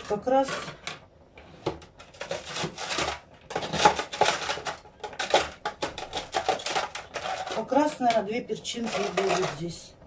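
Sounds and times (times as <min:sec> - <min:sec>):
knife chopping frozen pepper: 0:02.2 - 0:07.0.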